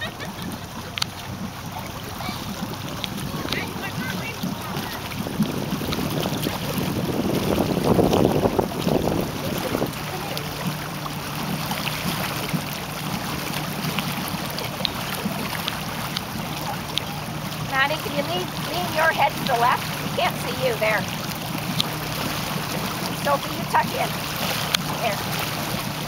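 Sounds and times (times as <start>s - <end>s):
motorboat engine low hum: 0.0s - 26.0s
wind noise on microphone: 3.1s - 10.3s.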